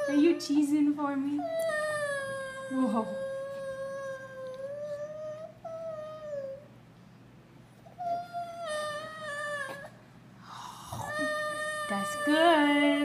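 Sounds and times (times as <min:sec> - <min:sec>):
baby whimpering: 0:01.4 - 0:06.7, 0:07.9 - 0:10.0, 0:10.7 - 0:13.0.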